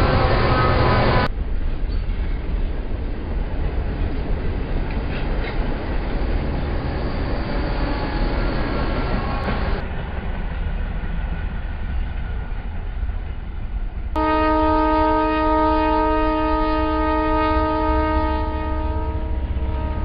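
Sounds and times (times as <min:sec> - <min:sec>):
low train rumble: 0:00.0 - 0:20.0
locomotive horn: 0:14.2 - 0:20.0.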